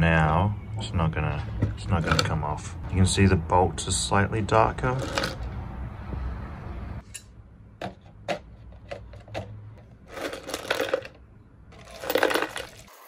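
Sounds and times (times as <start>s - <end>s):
steel bolts clinking in plastic tub: 11.8s - 13.0s.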